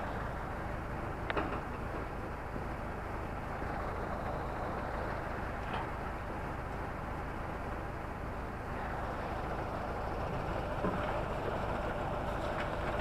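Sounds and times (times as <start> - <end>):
fire engine running: 0.0 - 13.0.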